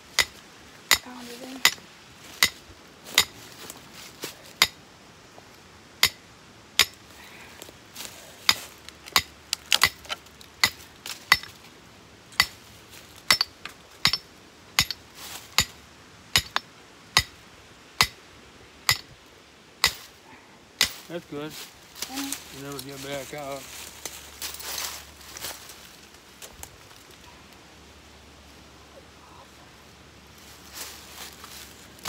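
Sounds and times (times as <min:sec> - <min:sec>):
hammer striking metal stake: 0:00.1 - 0:03.3, 0:06.0 - 0:06.2, 0:06.8 - 0:07.0, 0:08.5 - 0:11.5, 0:12.4 - 0:12.6, 0:13.3 - 0:15.0, 0:15.6 - 0:17.4, 0:18.9 - 0:19.2, 0:19.8 - 0:20.1.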